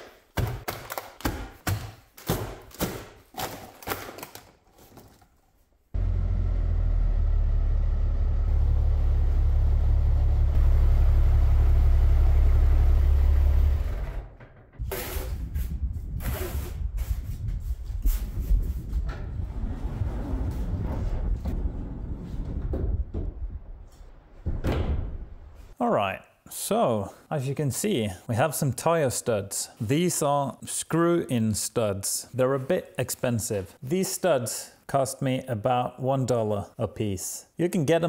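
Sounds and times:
plastic packs clattering on wood: 0:00.0 - 0:05.6
tractor engine rumble: 0:06.0 - 0:16.0
shovel scraping concrete floor: 0:14.9 - 0:16.8.

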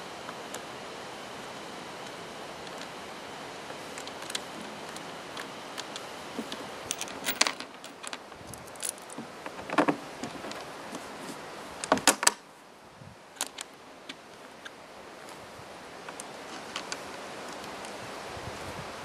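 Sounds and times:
steady background hiss: 0:00.0 - 0:19.0
small metal parts clinking: 0:06.4 - 0:09.9.

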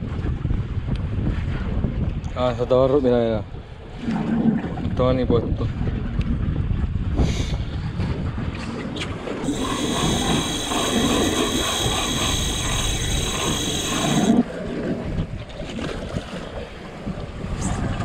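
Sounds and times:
boat and wind noise: 0:00.0 - 0:18.0
mechanical whir with high whine: 0:09.4 - 0:14.5.

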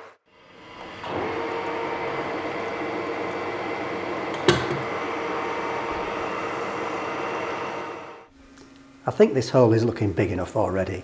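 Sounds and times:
metal lathe humming: 0:00.0 - 0:08.3.

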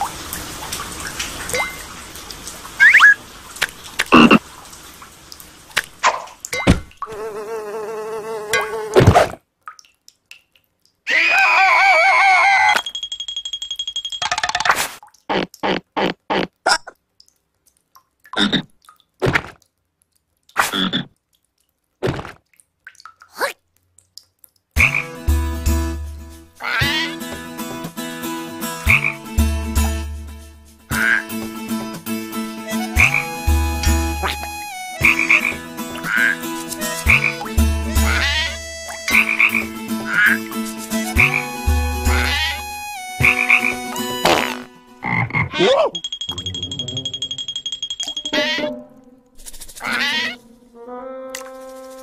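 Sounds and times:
cartoon frog croaking: 0:26.6 - 0:27.2, 0:38.0 - 0:40.4, 0:42.1 - 0:42.6, 0:48.2 - 0:48.7, 0:49.6 - 0:50.4.

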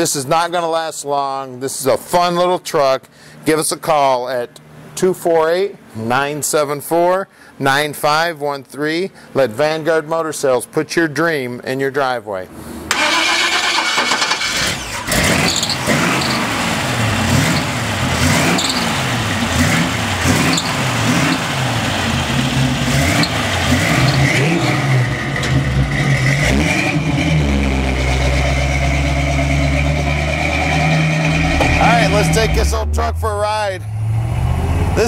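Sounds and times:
engine revving: 0:12.9 - 0:35.0
truck pulling away: 0:13.0 - 0:35.0.

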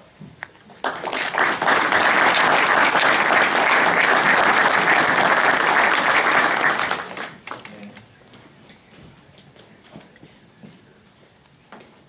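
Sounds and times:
audience applauding: 0:00.8 - 0:07.9.

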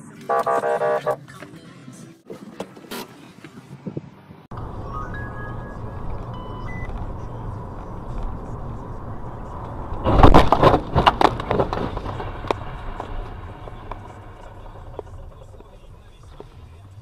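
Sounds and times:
car road and engine noise: 0:00.0 - 0:17.0
rapid sharp cracks and bangs: 0:10.0 - 0:15.7.

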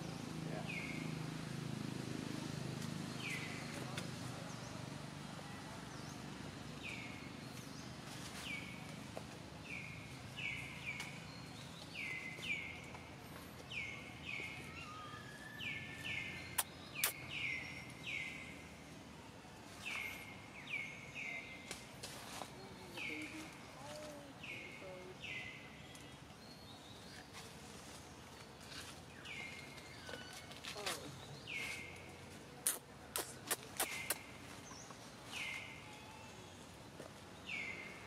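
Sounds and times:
outdoor background noise: 0:00.0 - 0:38.0
bird chirping: 0:13.6 - 0:19.0.

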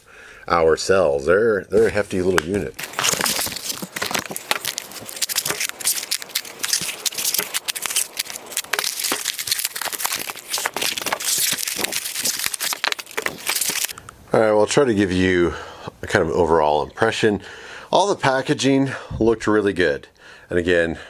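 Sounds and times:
foam and plastic wrap crinkling: 0:02.8 - 0:14.0
small clicks and crackles: 0:02.8 - 0:14.0.

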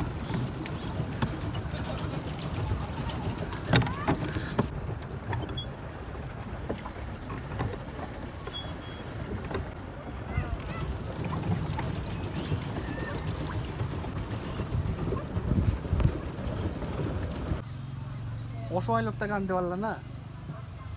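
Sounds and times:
water churning and lapping: 0:00.0 - 0:17.6
wind buffeting microphone: 0:00.0 - 0:17.6.

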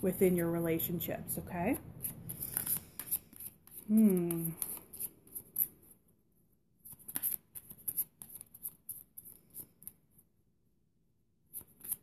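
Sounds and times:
cards being shuffled: 0:02.0 - 0:05.7, 0:06.9 - 0:09.7.

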